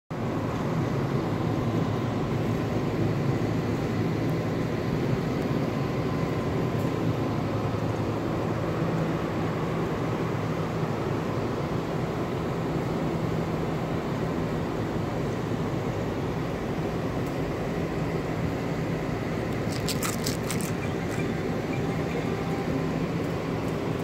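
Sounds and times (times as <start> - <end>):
faint high whine: 0.2 - 24.0
ventilation fans humming: 0.2 - 24.0.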